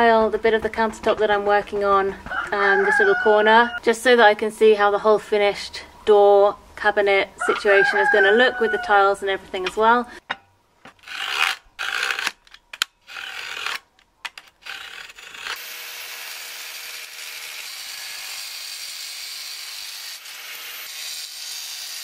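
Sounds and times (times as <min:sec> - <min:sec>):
angle grinder cutting tile: 0:11.0 - 0:12.4, 0:13.0 - 0:22.0.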